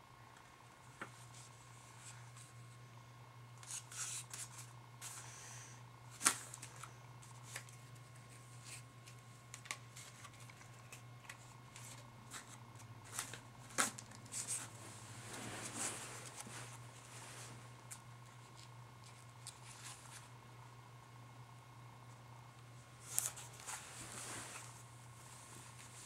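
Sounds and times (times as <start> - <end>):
paper rustling: 6.2 - 20.3, 23.0 - 24.8.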